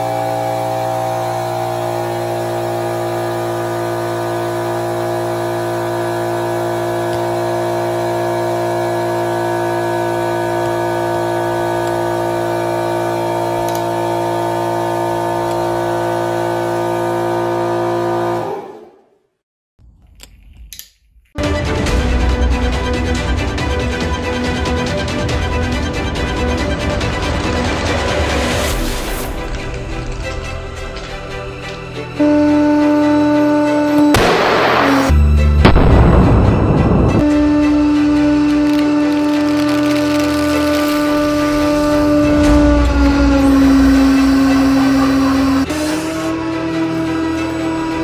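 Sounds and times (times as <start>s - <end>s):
hydraulic pump motor hum: 0.0s - 18.9s, 37.2s - 48.0s.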